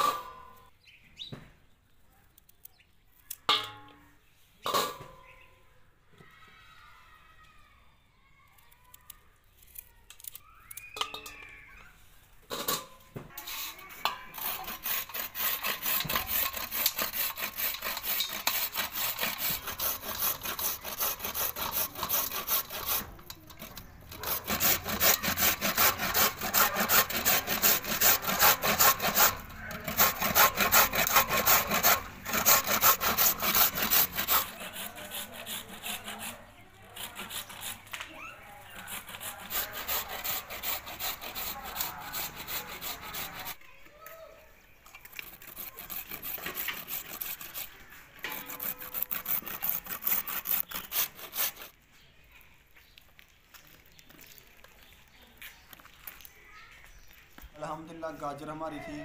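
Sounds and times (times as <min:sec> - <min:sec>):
carrots grated on metal grater: 0:13.5 - 0:37.9, 0:45.3 - 0:51.7.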